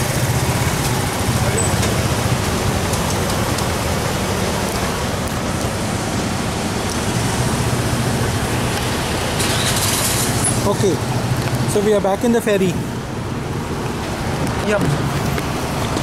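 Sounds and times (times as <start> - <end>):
steady rushing noise: 0.0 - 16.0.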